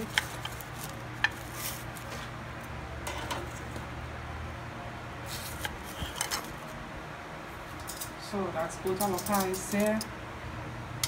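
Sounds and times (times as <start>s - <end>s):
tongs rustling on paper: 0.0s - 2.3s, 8.8s - 10.1s
steady low hum: 0.0s - 11.0s.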